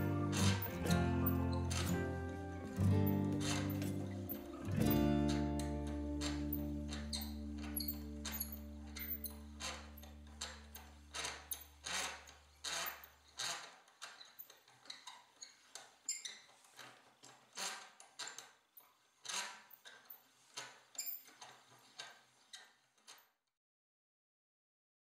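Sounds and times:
faint background music: 0:00.0 - 0:11.6
gear train clicking: 0:00.0 - 0:13.7.

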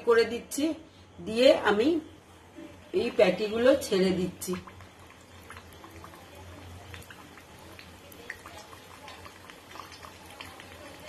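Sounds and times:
oil sizzling and crackling: 0:03.1 - 0:11.0.

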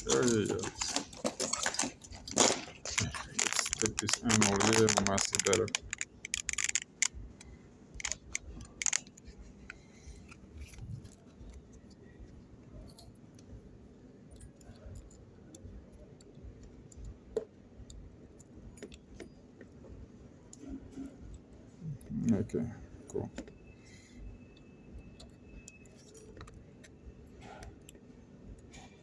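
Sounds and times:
handling clicks and taps: 0:00.0 - 0:10.4
low steady hum: 0:00.0 - 0:29.0.

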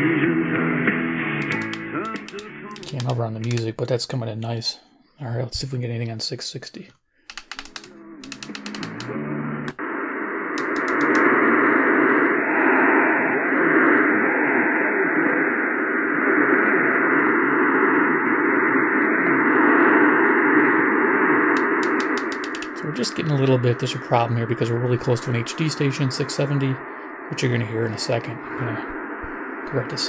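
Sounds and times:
radio clicks: 0:01.4 - 0:03.8, 0:07.3 - 0:09.8, 0:10.6 - 0:11.6, 0:21.5 - 0:23.6
radio interference hiss: 0:09.8 - 0:15.5, 0:18.7 - 0:30.0.

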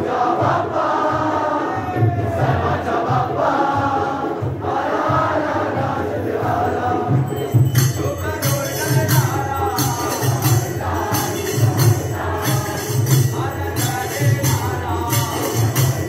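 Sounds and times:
drum steady beat: 0:00.0 - 0:16.0
voices singing: 0:00.0 - 0:16.0
jingling percussion: 0:04.4 - 0:16.0.

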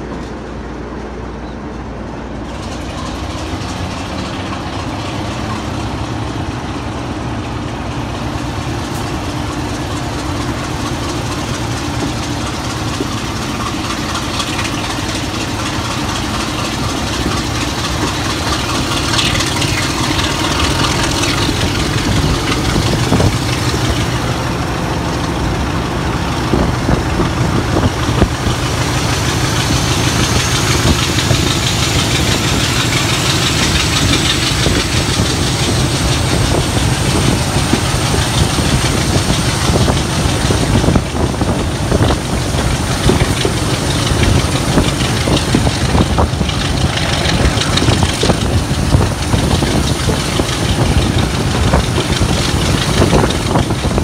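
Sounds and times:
diesel locomotive running: 0:00.0 - 0:54.0
high whine: 0:00.0 - 0:54.0
train wheels on rails: 0:00.0 - 0:54.0
wind on microphone: 0:17.0 - 0:24.4, 0:26.3 - 0:54.0.

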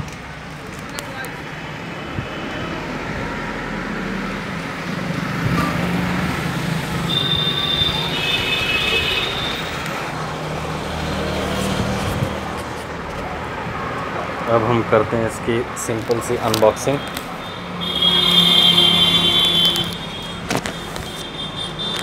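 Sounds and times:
road traffic noise: 0:00.0 - 0:22.0.

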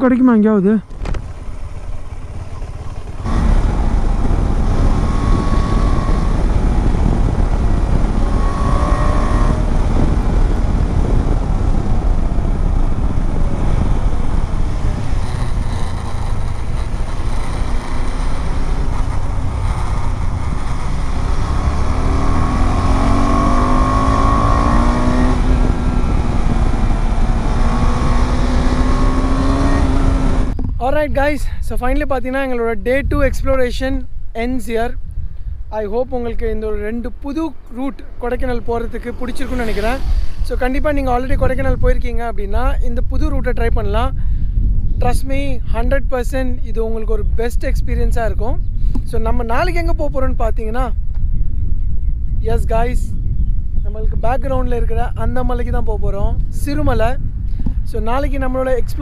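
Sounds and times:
motorcycle engine: 0:00.0 - 0:30.7
wind roar on microphone: 0:00.0 - 0:59.0.

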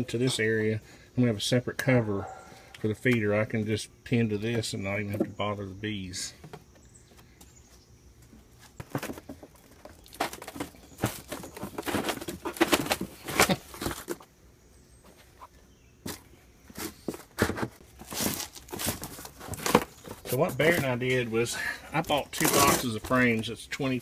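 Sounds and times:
cardboard and plastic sheets handled: 0:08.5 - 0:14.3, 0:15.1 - 0:23.5.

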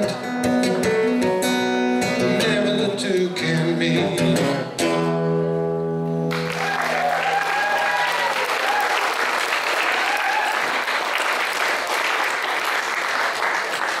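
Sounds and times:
audience applauding: 0:06.3 - 0:14.0
calls from crowd: 0:06.4 - 0:14.0.

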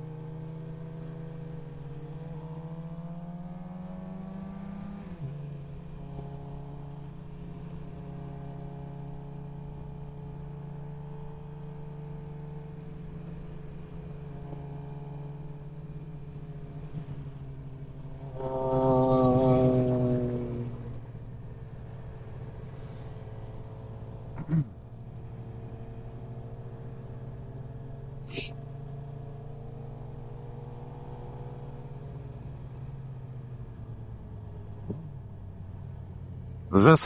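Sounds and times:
motorcycle engine revving: 0:18.2 - 0:21.8.

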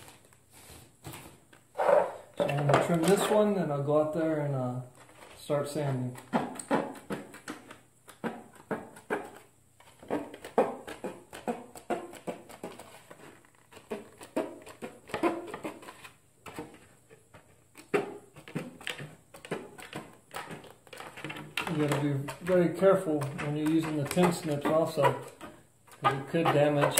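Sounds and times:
tin snips cutting plastic: 0:17.8 - 0:26.9.

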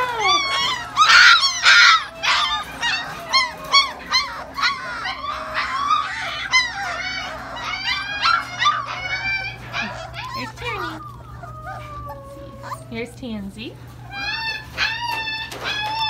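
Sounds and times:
puppies squealing and whimpering: 0:00.0 - 0:16.0.

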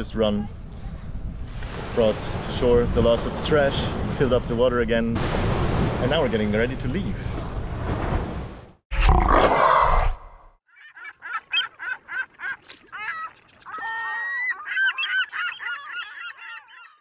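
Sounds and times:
honking bird calls: 0:10.8 - 0:17.0.

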